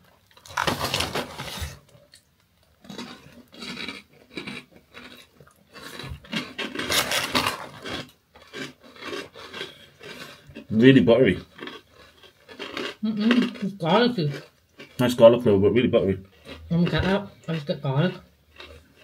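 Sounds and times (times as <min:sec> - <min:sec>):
croutons being chewed: 0:00.0 - 0:15.4, 0:16.2 - 0:19.0
snack bag rustling: 0:00.2 - 0:02.2, 0:02.8 - 0:10.7.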